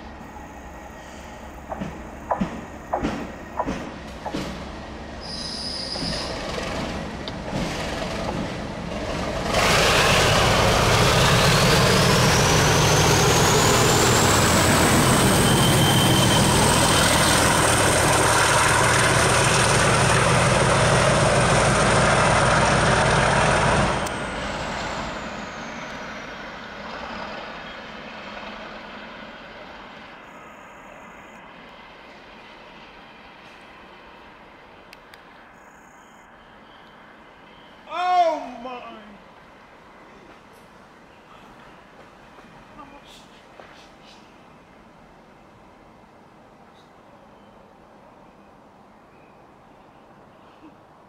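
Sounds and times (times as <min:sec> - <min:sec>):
diesel locomotive engine passing: 0:00.0 - 0:51.0
turbocharger whistle: 0:15.0 - 0:16.9.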